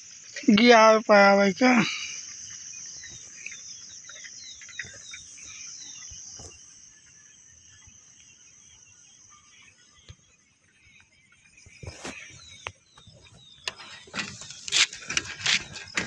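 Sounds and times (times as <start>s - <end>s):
bird chirping: 0.0s - 16.0s
crickets shrilling: 0.0s - 16.0s.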